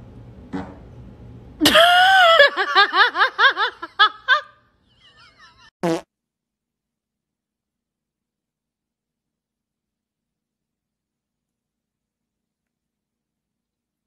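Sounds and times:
high squeaky fart: 0:05.8 - 0:06.0.

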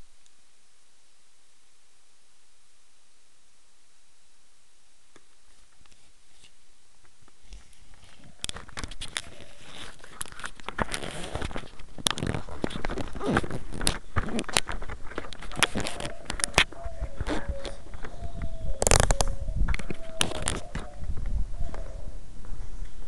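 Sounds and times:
faint hiss: 0:00.0 - 0:19.7
camera handling noise: 0:07.5 - 0:21.0.

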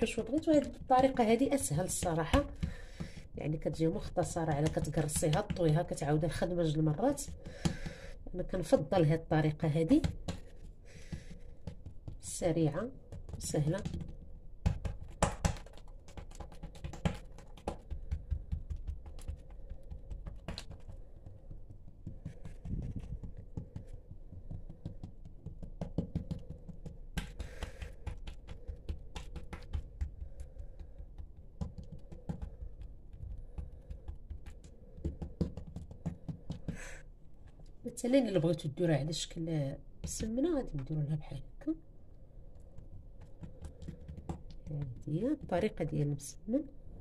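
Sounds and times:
dough slaps: 0:00.0 - 0:06.2, 0:06.8 - 0:08.1, 0:09.8 - 0:37.0
hands patting dough: 0:00.0 - 0:37.6, 0:42.4 - 0:46.2.

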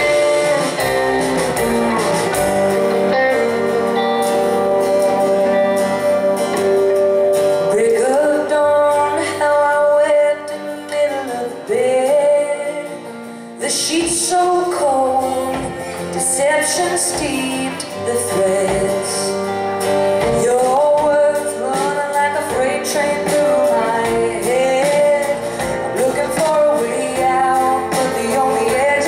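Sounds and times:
live rock band: 0:00.0 - 0:29.0
woman singing: 0:07.5 - 0:19.6, 0:20.2 - 0:29.0.

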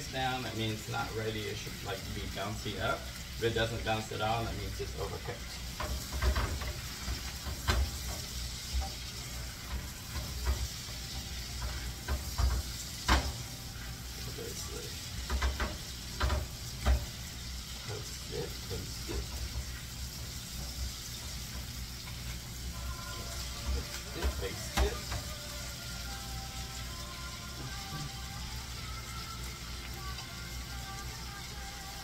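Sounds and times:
meat sizzling in a frying pan: 0:00.0 - 0:32.0
utensil knocking against pan: 0:11.6 - 0:13.4.

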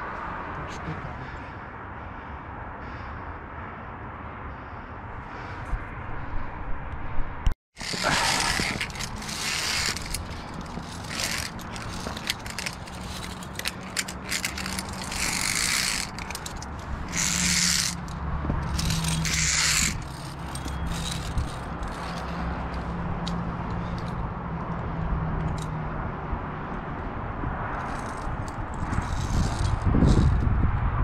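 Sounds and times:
carabiners rasping along steel cable: 0:07.8 - 0:24.2, 0:27.8 - 0:30.5.

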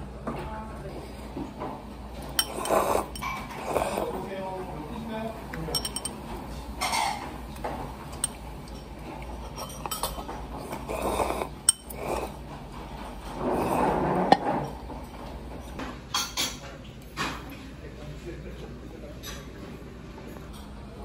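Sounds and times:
cutlery and dishes clinking: 0:02.4 - 0:03.6, 0:05.7 - 0:10.4.

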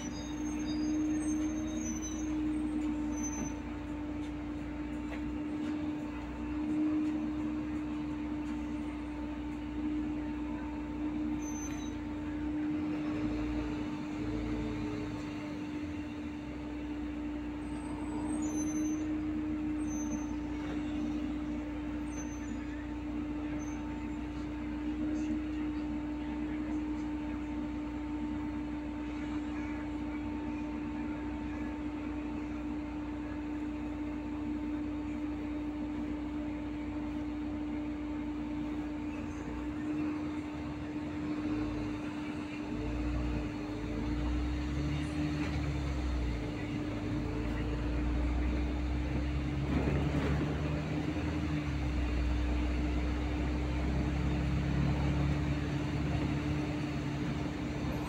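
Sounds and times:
bus engine: 0:00.0 - 0:58.0
road noise: 0:00.0 - 0:58.0.

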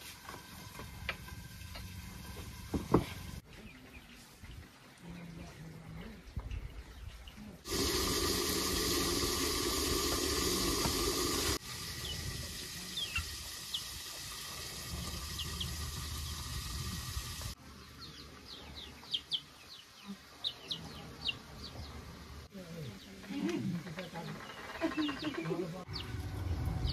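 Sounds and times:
small birds chirping: 0:03.4 - 0:07.6, 0:12.9 - 0:13.9, 0:15.3 - 0:16.5, 0:17.7 - 0:26.9
water rushing: 0:07.7 - 0:17.6.

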